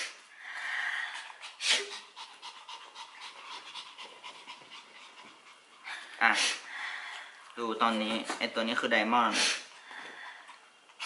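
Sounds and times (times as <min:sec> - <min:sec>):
small dog panting: 0:01.0 - 0:08.6.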